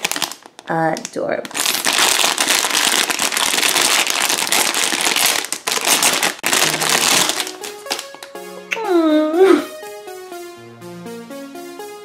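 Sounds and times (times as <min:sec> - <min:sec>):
plastic bag crinkling: 0:00.0 - 0:08.1.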